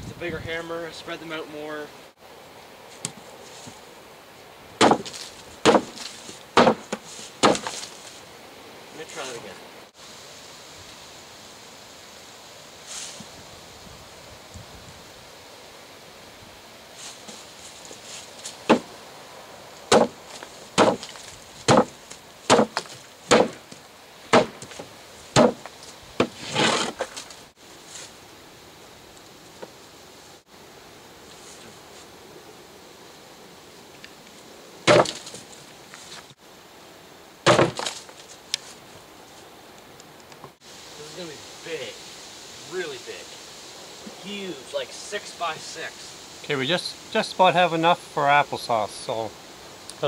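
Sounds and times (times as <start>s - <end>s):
hammer smashing apples on wood: 4.8s - 7.9s, 18.7s - 18.9s, 19.9s - 20.2s, 20.8s - 27.1s, 34.9s - 35.4s, 37.5s - 38.0s.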